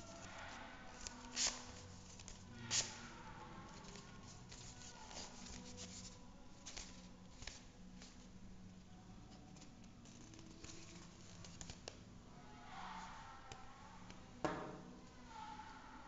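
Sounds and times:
paper rustling and crackling: 0:00.0 - 0:03.1, 0:03.8 - 0:08.3, 0:09.3 - 0:12.1.

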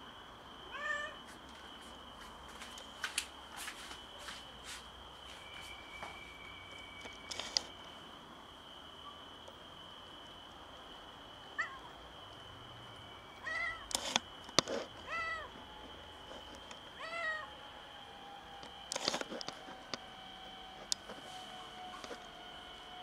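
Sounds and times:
faint high whine: 0:00.0 - 0:23.0
cat meowing: 0:00.7 - 0:01.2, 0:11.6 - 0:11.8.

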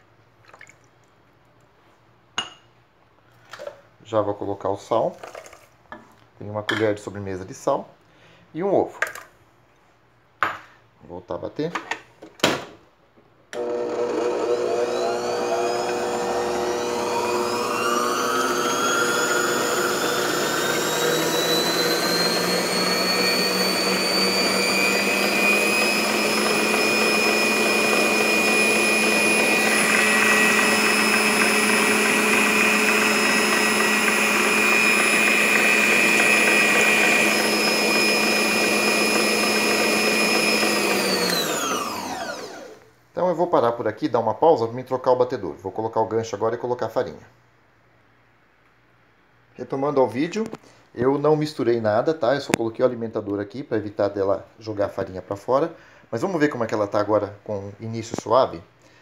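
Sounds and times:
stand mixer motor whining: 0:13.6 - 0:42.8
whisk beating liquid: 0:15.8 - 0:39.6.

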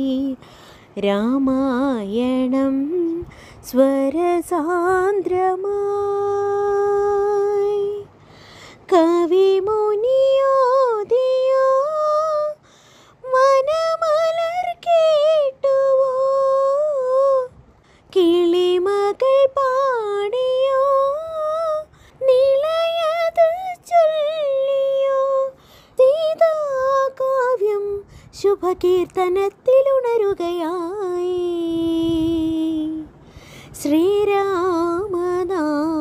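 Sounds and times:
woman singing with vibrato: 0:00.0 - 0:08.2, 0:08.8 - 0:12.6, 0:13.2 - 0:36.0
singer breathing: 0:00.4 - 0:01.0, 0:03.2 - 0:03.6, 0:08.1 - 0:08.9, 0:12.6 - 0:13.2, 0:21.9 - 0:22.2, 0:25.6 - 0:26.0, 0:33.1 - 0:33.8.

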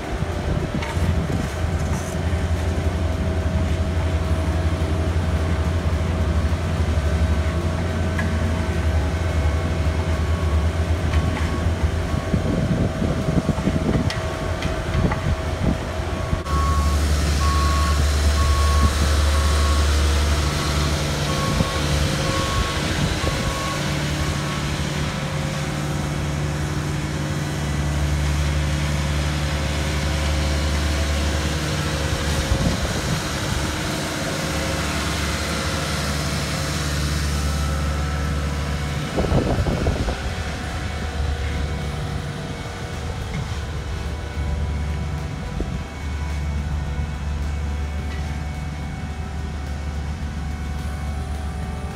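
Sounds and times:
diesel engine humming: 0:00.0 - 0:51.9
back-up alarm beeping: 0:16.4 - 0:26.1.

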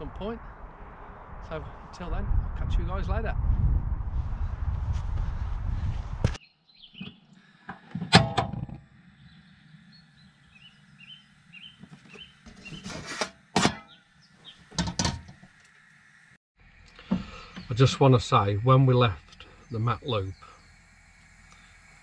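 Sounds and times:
faint bird chirps: 0:09.0 - 0:13.0, 0:16.9 - 0:21.9
faint steady hum: 0:14.2 - 0:22.0.

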